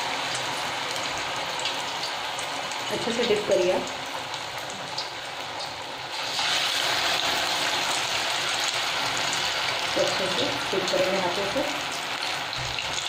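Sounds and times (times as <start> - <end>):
oil sizzling in a pan: 0.0 - 13.0.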